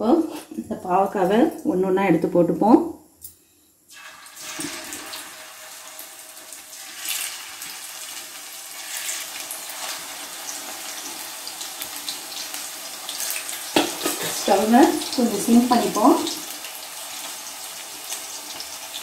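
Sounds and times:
slices sizzling in hot oil: 3.9s - 19.0s.

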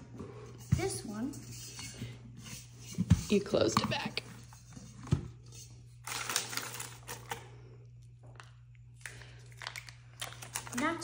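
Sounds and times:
plastic crinkling: 6.0s - 7.4s, 9.0s - 11.0s.

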